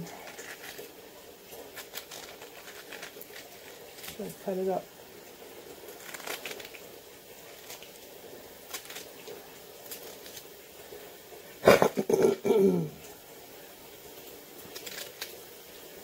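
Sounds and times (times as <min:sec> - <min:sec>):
knife cutting cabbage leaves: 0:00.0 - 0:01.0, 0:01.6 - 0:04.8, 0:05.8 - 0:10.6, 0:14.7 - 0:15.4.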